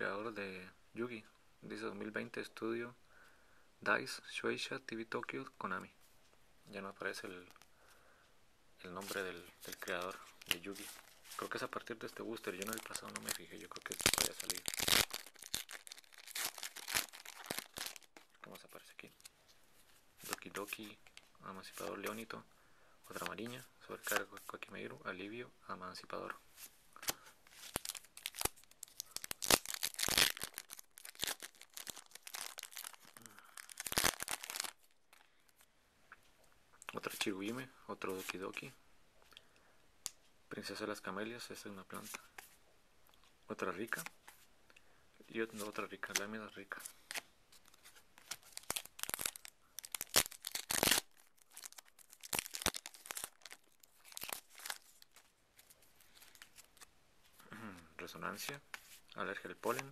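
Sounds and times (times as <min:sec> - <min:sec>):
cards rustling and clicking: 0:09.0 - 0:18.4, 0:27.0 - 0:35.3, 0:45.5 - 0:56.9
foil wrapper crinkling and tearing: 0:12.4 - 0:18.3, 0:27.0 - 0:34.9, 0:47.0 - 0:56.9.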